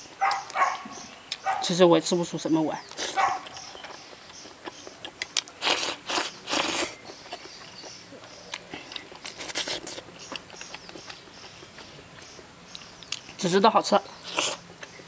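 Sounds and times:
person chewing: 0.0 - 1.5, 2.9 - 13.4, 14.2 - 15.0
loud slurps: 5.6 - 7.0, 9.3 - 10.0.

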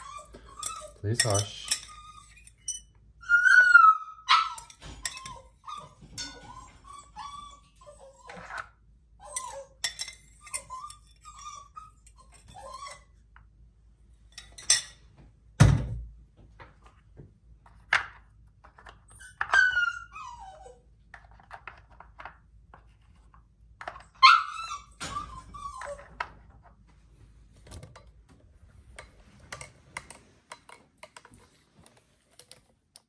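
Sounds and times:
dog whimpering: 0.0 - 2.4, 3.2 - 9.8, 10.5 - 13.1, 19.5 - 20.8, 24.2 - 26.2.

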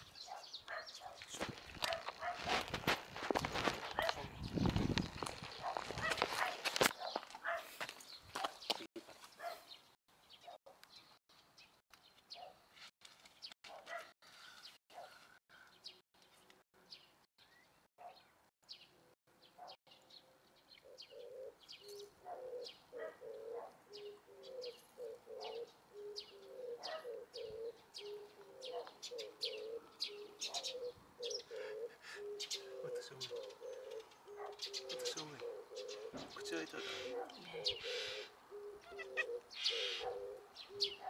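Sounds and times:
small birds chirping: 0.0 - 41.0
dove cooing: 20.8 - 41.0.

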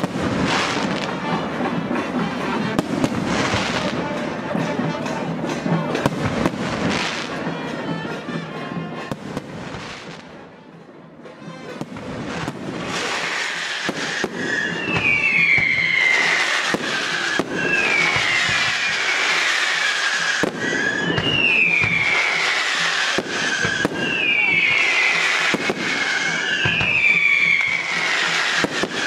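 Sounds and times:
hissing firework barrage: 0.0 - 4.7, 11.8 - 29.0
fireworks bursting with bangs: 0.0 - 10.7, 11.3 - 29.0
falling firework whistle: 11.8 - 29.0.

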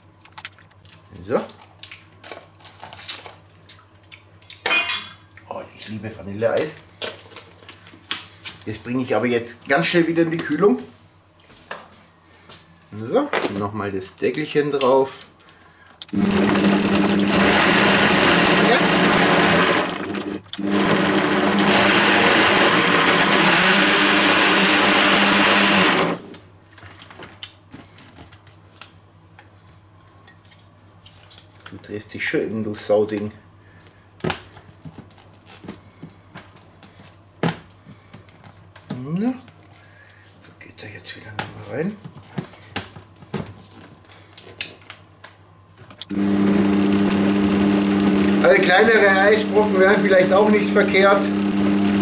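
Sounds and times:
blender running: 16.1 - 26.4, 46.0 - 52.0.

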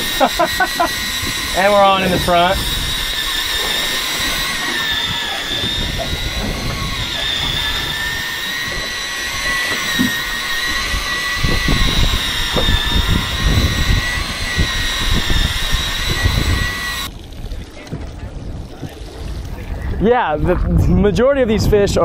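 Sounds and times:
electric reel motor whining: 0.0 - 17.5
low rumbling gusts: 0.0 - 22.0.

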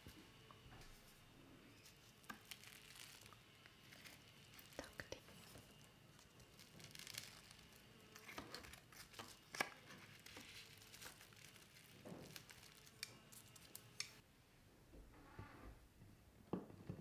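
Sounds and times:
plastic cling wrap crinkling: 1.8 - 14.2.

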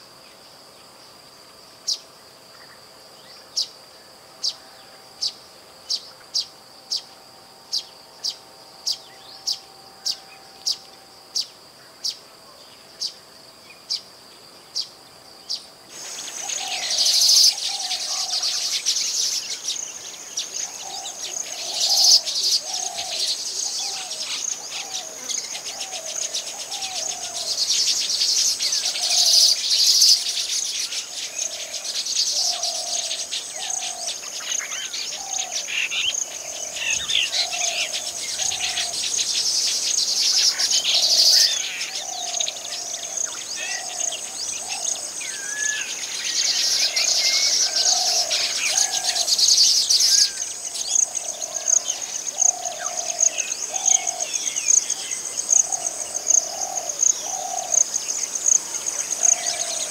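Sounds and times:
birds buzzing chatter: 14.7 - 59.9.

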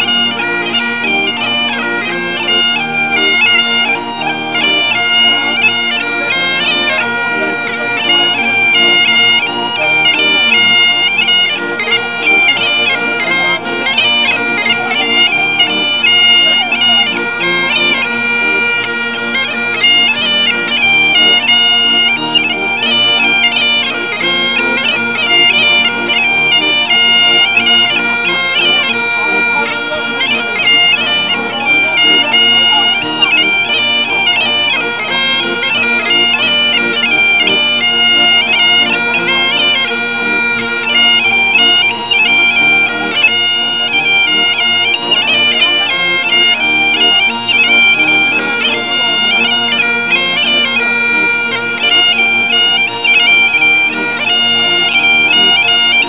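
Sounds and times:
accordions playing: 0.0 - 56.0
bagpipes playing lively tune: 0.0 - 56.0.

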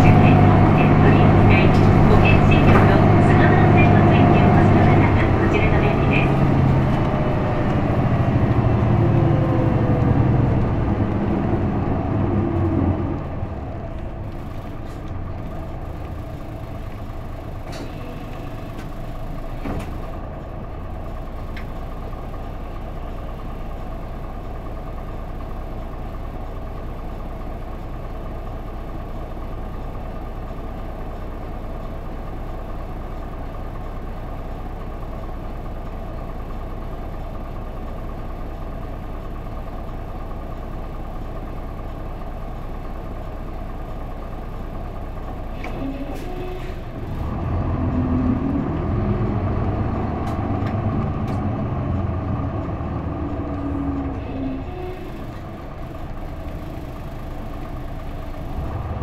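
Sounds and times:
bus diesel engine: 0.0 - 59.0.

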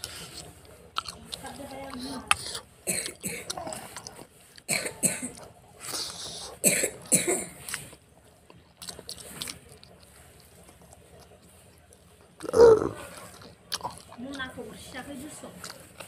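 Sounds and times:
man coughing: 4.7 - 5.4, 6.6 - 7.5
man clearing throat: 6.6 - 7.5.

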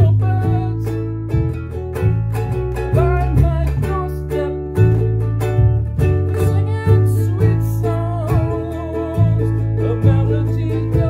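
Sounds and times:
man singing: 0.0 - 1.2, 2.9 - 5.1, 6.3 - 11.0
bass low notes: 0.0 - 11.0
ukulele strumming: 0.0 - 11.0.

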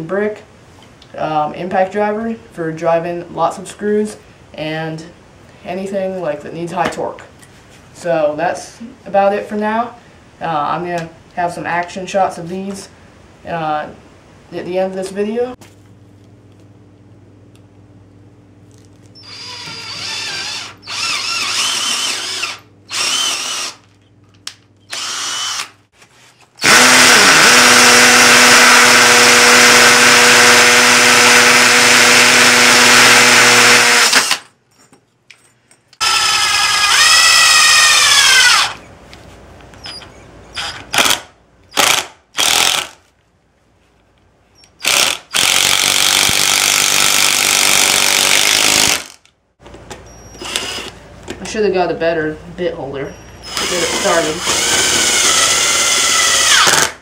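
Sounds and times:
cordless drill bursts: 19.2 - 23.8, 24.9 - 25.8, 26.6 - 34.4, 36.0 - 38.8, 40.6 - 43.0, 44.8 - 49.2, 50.4 - 51.0, 53.4 - 57.0
hammer drill boring into brick: 19.2 - 23.8, 24.9 - 25.7, 26.6 - 34.4, 36.0 - 38.8, 40.6 - 43.0, 44.7 - 49.2, 53.4 - 57.0
impact driver driving screw: 40.6 - 43.0, 44.7 - 49.2, 53.5 - 57.0.

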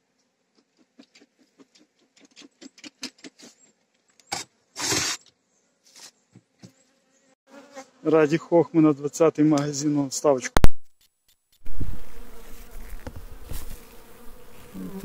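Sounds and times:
sharp knock: 10.6 - 10.9
bees buzzing: 11.6 - 15.0.

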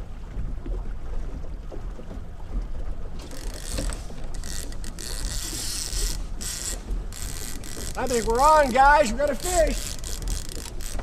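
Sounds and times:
outboard motor humming: 0.0 - 11.0
fishing reel buzzing: 3.2 - 11.0.

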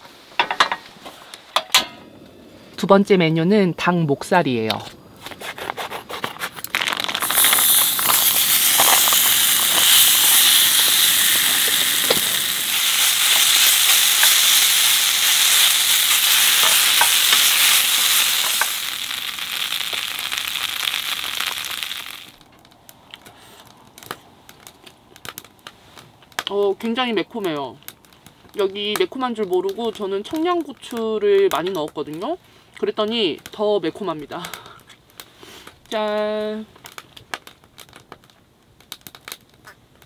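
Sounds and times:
meat sizzling in pan: 6.7 - 22.4.

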